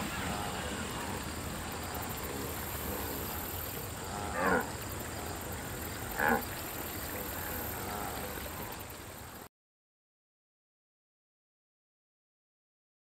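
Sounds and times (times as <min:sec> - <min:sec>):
wildebeest grunts: 0:00.0 - 0:01.2, 0:02.0 - 0:06.5, 0:07.4 - 0:08.6
steady background hiss: 0:00.0 - 0:09.5.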